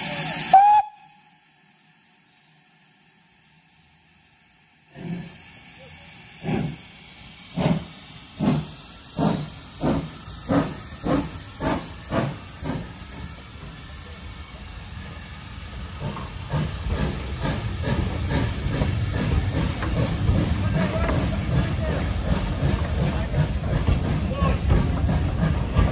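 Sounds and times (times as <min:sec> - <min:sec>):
steam engine exhaust chuffing: 0:00.0 - 0:25.9
coaches rolling with rhythmic rumble: 0:18.7 - 0:25.9.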